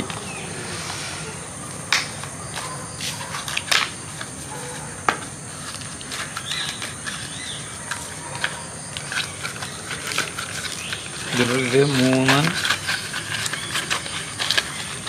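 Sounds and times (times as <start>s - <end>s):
high-pitched background whine: 0.0s - 15.0s
packaging clicks and rustling: 1.9s - 15.0s.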